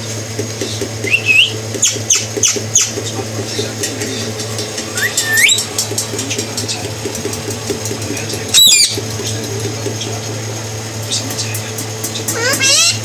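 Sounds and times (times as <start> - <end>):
low hum: 0.0 - 12.3
parrot squawk: 1.0 - 2.9, 4.9 - 5.7, 8.5 - 9.0, 12.3 - 13.0
parrot whistle: 1.0 - 2.9, 5.0 - 5.7, 8.5 - 9.0, 12.3 - 13.0.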